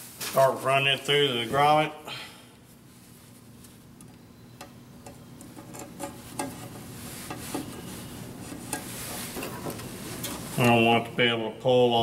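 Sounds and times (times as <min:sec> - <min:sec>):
cable rubbing against metal: 0:05.1 - 0:10.8.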